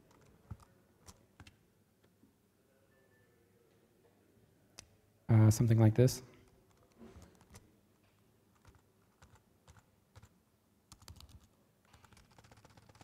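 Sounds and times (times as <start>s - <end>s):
laptop keyboard typing: 0.0s - 1.6s, 6.5s - 7.7s, 8.5s - 13.0s.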